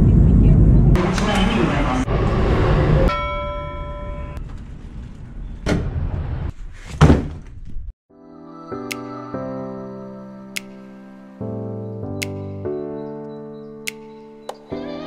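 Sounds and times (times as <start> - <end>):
train rumbling: 0.0 - 6.9
chime-like tone: 3.1 - 4.4
soft music: 8.1 - 15.0.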